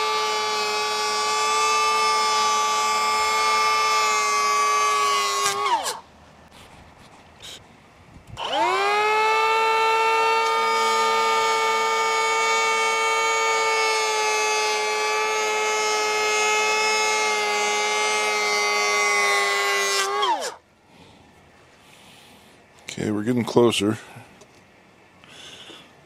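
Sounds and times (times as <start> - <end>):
power planer whining: 0.0 - 6.0, 8.4 - 20.6.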